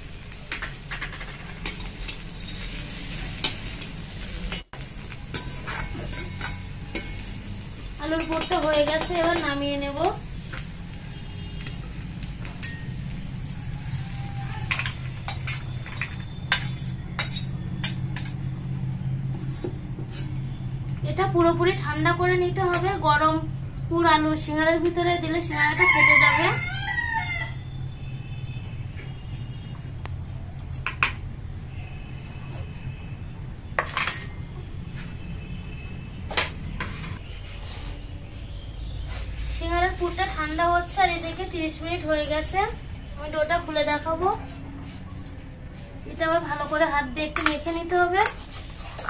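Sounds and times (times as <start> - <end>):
metal utensils scraping and clinking: 0.5 - 10.6, 11.6 - 18.6, 19.2 - 20.5, 33.8 - 34.4, 47.2 - 49.0.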